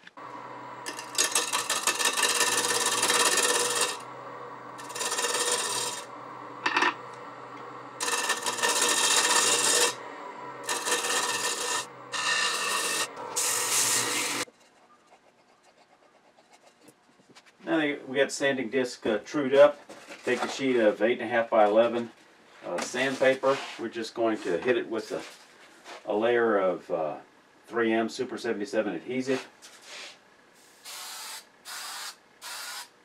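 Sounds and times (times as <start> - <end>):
lathe motor hum: 0.2 - 14.5
turning tool scraping wood: 0.2 - 17.6.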